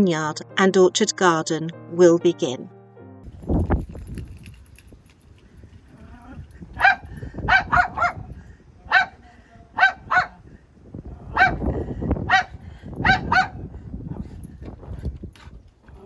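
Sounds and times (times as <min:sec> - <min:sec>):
small dog barking: 0:06.8 - 0:08.3, 0:08.9 - 0:09.2, 0:09.8 - 0:10.4, 0:11.3 - 0:11.6, 0:12.3 - 0:13.6.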